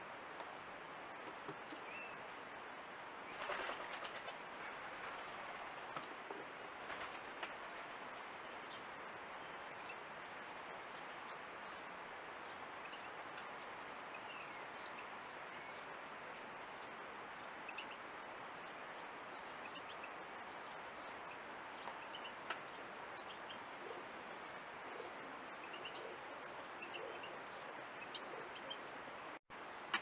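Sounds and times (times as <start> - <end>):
microphone hiss: 0.0 - 30.0
bird wing flutter and clatter: 3.3 - 6.2, 6.8 - 8.0
distant bird chirps: 18.6 - 30.0.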